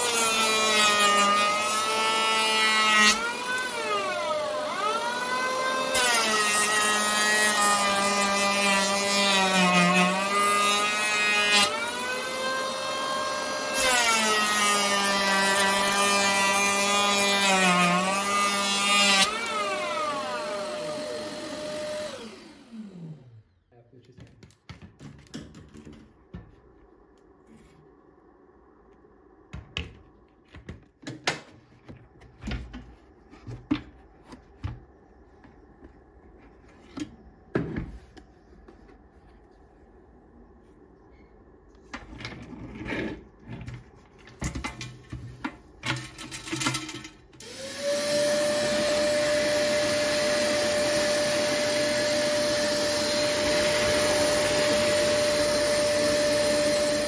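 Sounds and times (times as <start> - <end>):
vacuum cleaner motor whining: 0.0 - 6.7, 10.0 - 23.5, 45.8 - 57.0.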